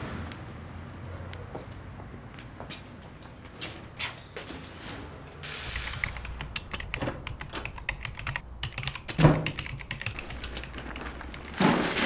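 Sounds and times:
fast typing on keyboard: 5.8s - 11.5s.

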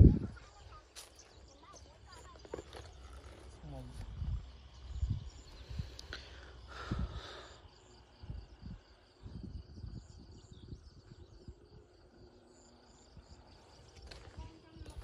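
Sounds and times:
low rumbles on microphone: 0.0s - 0.6s, 2.9s - 6.0s, 8.1s - 12.3s
high insect chirps: 0.0s - 15.0s
insects trilling: 0.0s - 15.0s.

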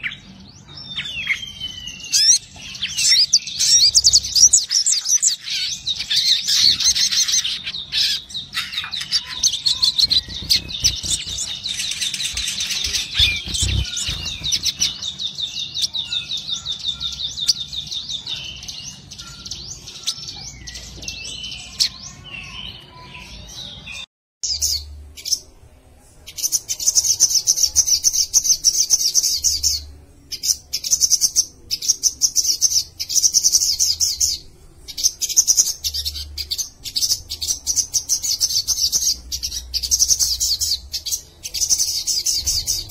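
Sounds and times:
sunbird trilling: 6.9s - 15.1s.

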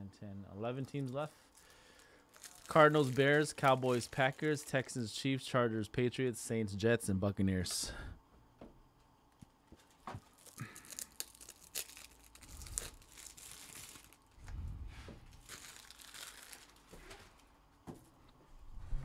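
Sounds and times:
packaging crinkling and rustling: 0.8s - 4.9s, 9.7s - 17.5s.

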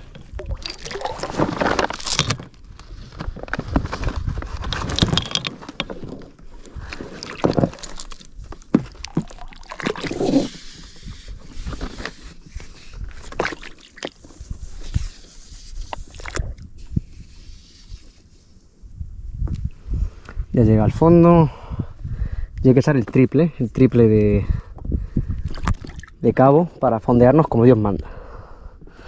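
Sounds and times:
water sloshing: 0.0s - 2.3s, 7.0s - 10.6s
chain and rope rattling: 4.7s - 6.1s.

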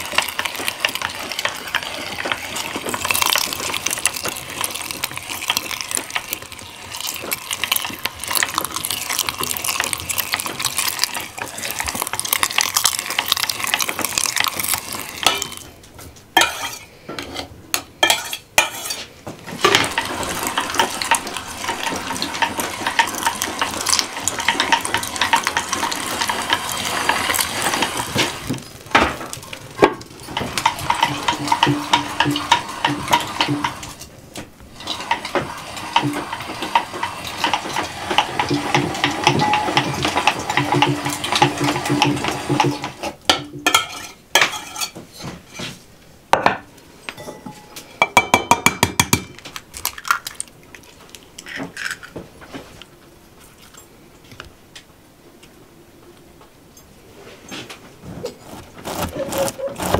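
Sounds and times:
meat grinder crackling and scraping: 0.0s - 43.2s, 58.1s - 59.9s.

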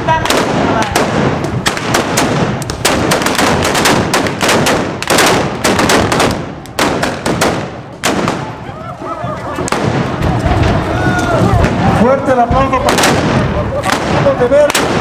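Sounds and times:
muskets firing blank charges: 0.2s - 8.6s.

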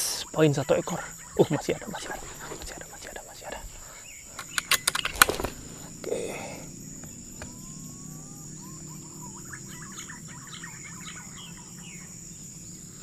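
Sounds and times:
high insect drone: 0.0s - 13.0s
pigeon whistling calls: 6.9s - 12.1s.

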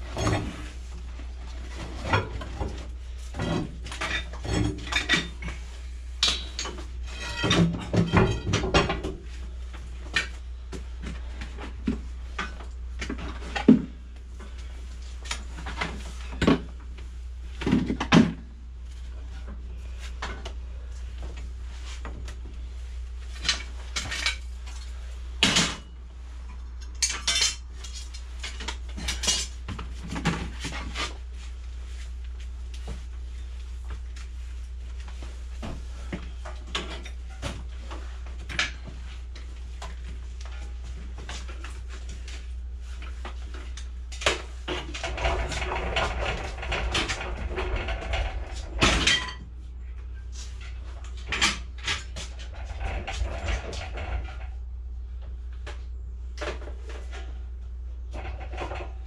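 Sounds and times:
steady low hum: 0.0s - 59.0s
metal tools clanking: 6.2s - 9.1s, 26.8s - 29.6s.

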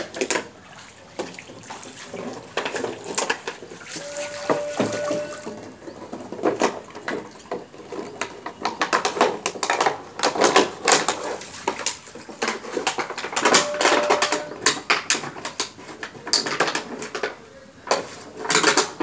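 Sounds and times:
dog chewing crackling plastic: 1.2s - 19.0s.

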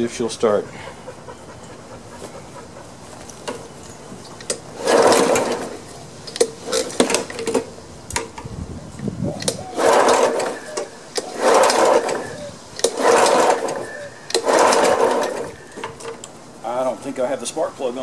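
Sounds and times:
recoil starter pull whirr: 4.4s - 16.4s.

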